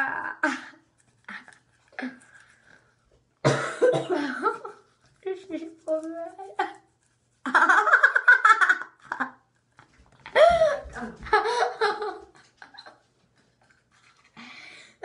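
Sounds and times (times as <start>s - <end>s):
person laughing with toothbrush: 0.0s - 2.6s, 3.5s - 5.0s, 6.4s - 9.5s, 10.2s - 14.4s.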